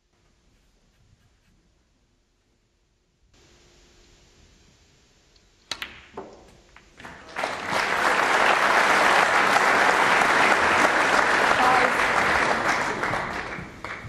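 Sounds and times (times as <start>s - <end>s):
snooker balls clicking: 5.6s - 7.0s
audience applause: 7.0s - 14.0s.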